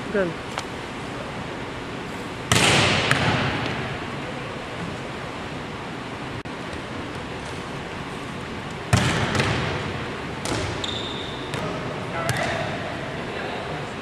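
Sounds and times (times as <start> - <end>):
volleyball smack echoing: 2.4 - 3.9, 8.9 - 10.9, 11.5 - 12.8.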